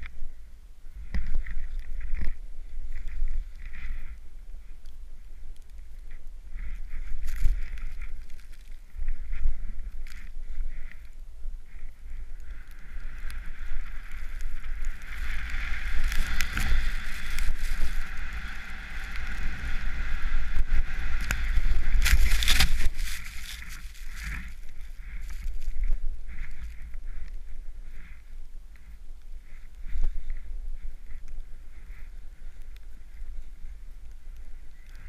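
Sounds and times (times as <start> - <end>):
wind rumble on helmet: 0.0 - 35.0
snowboard hissing through powder: 12.8 - 25.1
snow spraying over camera: 12.8 - 25.5.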